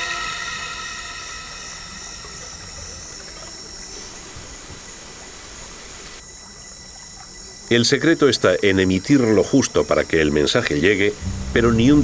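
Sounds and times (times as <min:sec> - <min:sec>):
background hiss: 0:00.0 - 0:12.0
faint high tones: 0:11.1 - 0:12.0.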